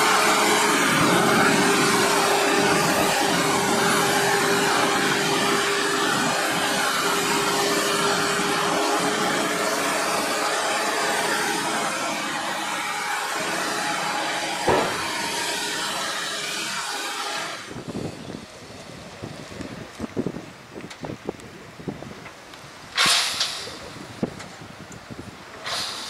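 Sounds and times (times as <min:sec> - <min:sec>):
diesel engine working hard: 0:00.0 - 0:19.9
sharp knock: 0:14.7 - 0:15.2.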